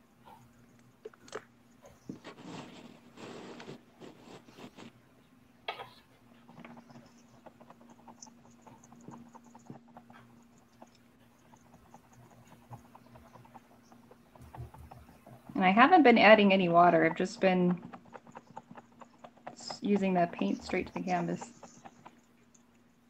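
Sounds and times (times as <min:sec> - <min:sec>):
steady low hum: 0:00.0 - 0:23.0
paint sponge patting on canvas: 0:06.4 - 0:22.4.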